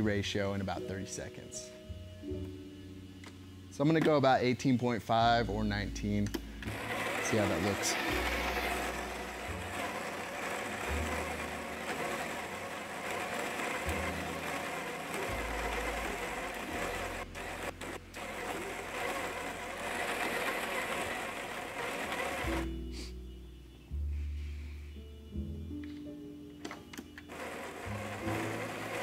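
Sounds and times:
coffee grinder grinding beans: 0:06.6 - 0:22.8, 0:27.3 - 0:29.0.

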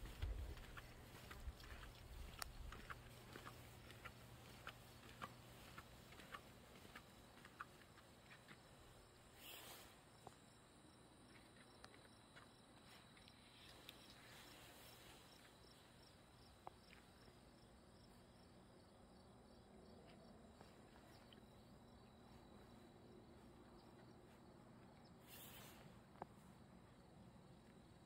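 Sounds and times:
footsteps on concrete: 0:00.0 - 0:09.1.

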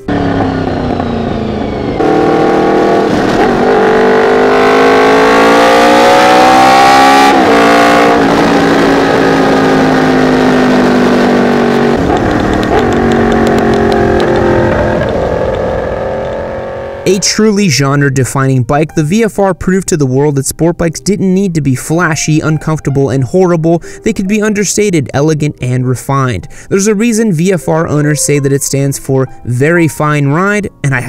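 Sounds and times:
motorcycle engine revving: 0:00.0 - 0:17.2.

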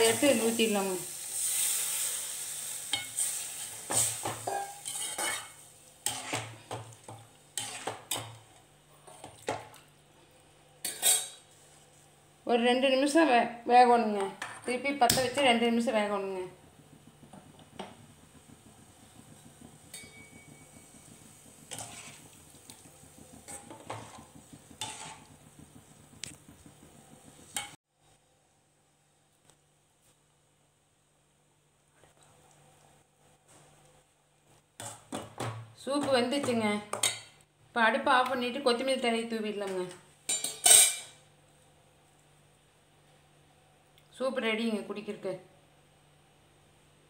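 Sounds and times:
liquid sizzling in hot pan: 0:00.0 - 0:08.6, 0:16.5 - 0:27.8
ladle clinking and scraping pot: 0:02.9 - 0:08.4, 0:10.8 - 0:11.5, 0:19.9 - 0:21.0, 0:21.7 - 0:25.3, 0:40.3 - 0:41.2
metal spoon clinking against pan: 0:04.4 - 0:05.5, 0:19.9 - 0:20.6, 0:40.3 - 0:41.2.

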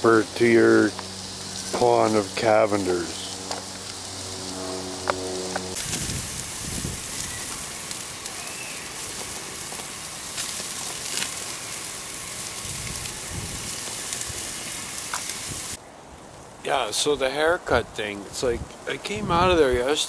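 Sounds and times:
fat crackling and popping: 0:00.0 - 0:04.2, 0:05.0 - 0:16.6
burgers sizzling on a grill: 0:00.0 - 0:15.8.

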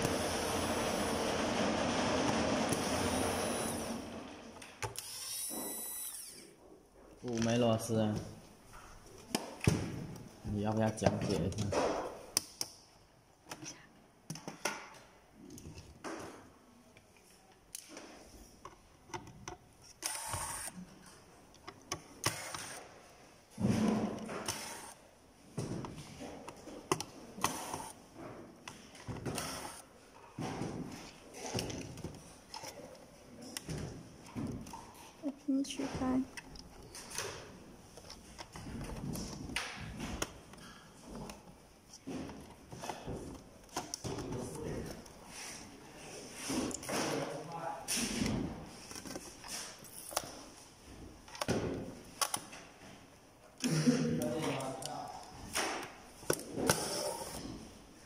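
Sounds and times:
electric screwdriver running: 0:02.7 - 0:04.0, 0:05.0 - 0:06.4, 0:20.0 - 0:20.8, 0:29.4 - 0:29.8.

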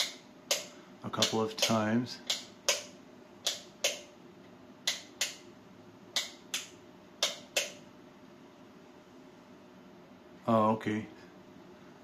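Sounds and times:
light switch clicking: 0:00.0 - 0:04.1, 0:04.8 - 0:05.4, 0:06.2 - 0:07.8.

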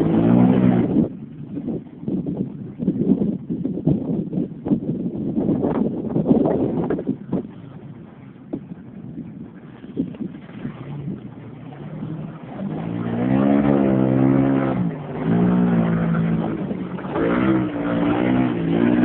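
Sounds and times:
truck engine revving: 0:00.0 - 0:01.0, 0:11.6 - 0:19.0.

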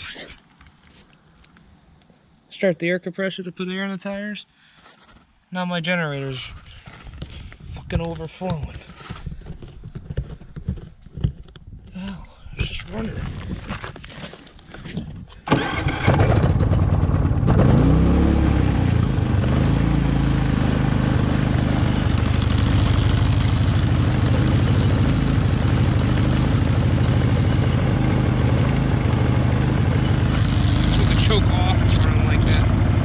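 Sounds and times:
generator engine running: 0:15.5 - 0:33.0.

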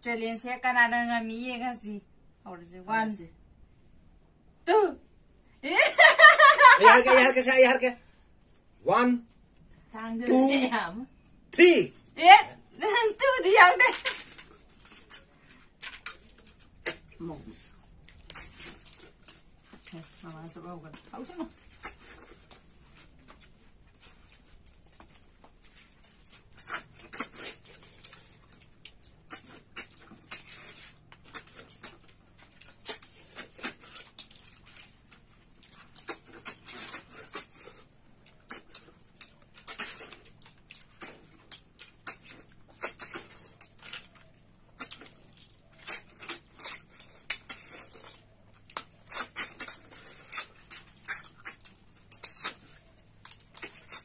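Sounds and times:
smacking and chewing: 0:14.0 - 0:54.0
sucking and slurping snails: 0:25.6 - 0:54.0.

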